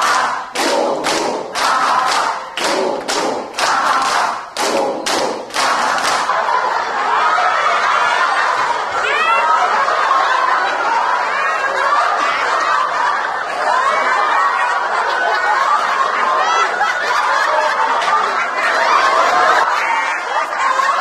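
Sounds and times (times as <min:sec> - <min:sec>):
crowd clapping in rhythm: 0:00.0 - 0:06.6
group laughter: 0:00.0 - 0:21.0.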